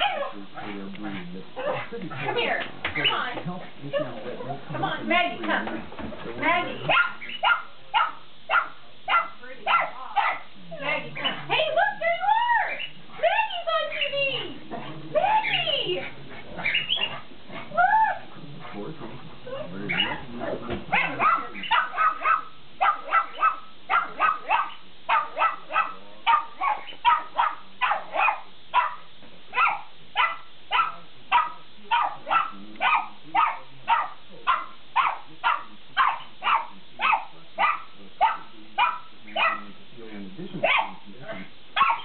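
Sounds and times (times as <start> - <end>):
dog barking: 0.0 - 0.9, 1.6 - 3.3, 6.8 - 11.6, 19.8 - 39.8, 40.6 - 41.0, 41.8 - 42.0.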